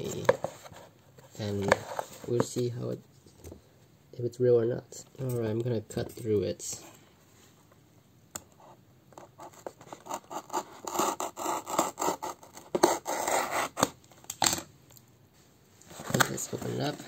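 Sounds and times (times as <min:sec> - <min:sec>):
knife cutting cardboard: 0:09.2 - 0:14.0.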